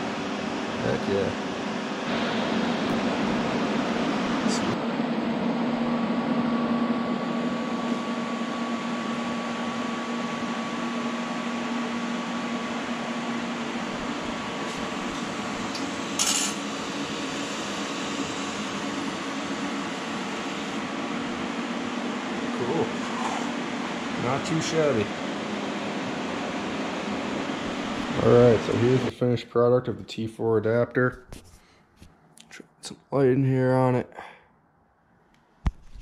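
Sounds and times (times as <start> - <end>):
welding hiss with low hum: 0.0 - 29.2
sharp metallic clink: 16.2 - 16.6.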